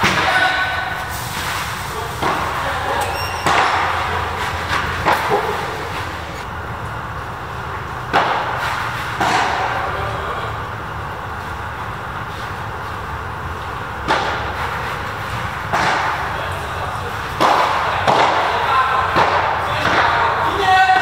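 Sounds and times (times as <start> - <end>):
ball hit by rackets and bouncing: 2.2 - 6.5, 8.1 - 9.8, 14.0 - 16.4, 17.2 - 20.4.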